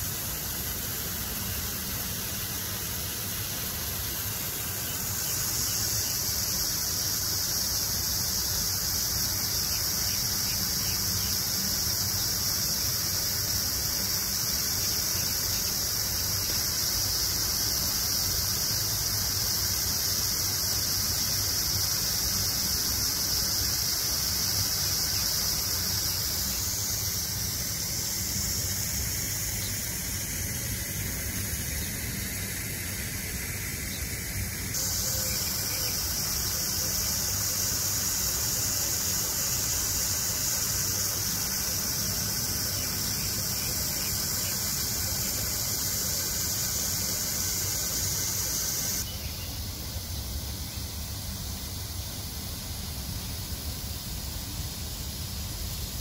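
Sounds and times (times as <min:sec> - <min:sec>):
lawn sprinkler spraying water: 0:00.0 - 0:56.0
high shrill steady tone: 0:22.0 - 0:49.1.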